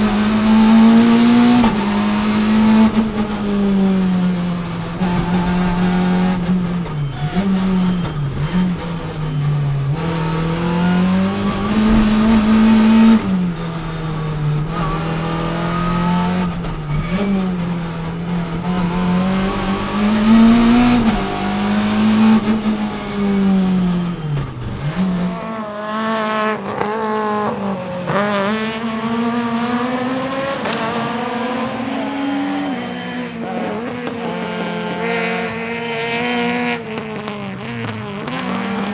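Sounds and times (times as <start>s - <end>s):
rally car engine at high revs: 0.0s - 38.9s.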